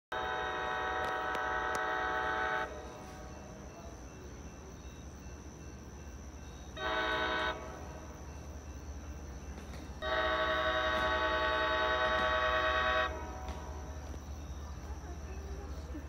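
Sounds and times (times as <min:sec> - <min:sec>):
locomotive air horn: 0:00.1 - 0:03.4, 0:06.8 - 0:08.0, 0:10.0 - 0:14.2.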